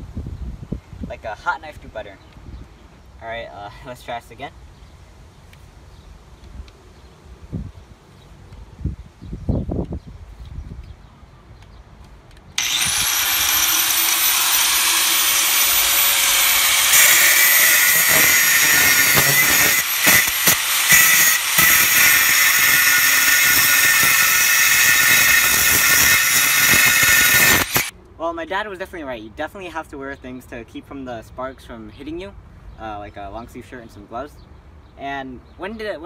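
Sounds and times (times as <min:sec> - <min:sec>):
angle grinder spinning up: 0:12.6 - 0:27.9
grinder cutting steel rod: 0:12.6 - 0:27.9.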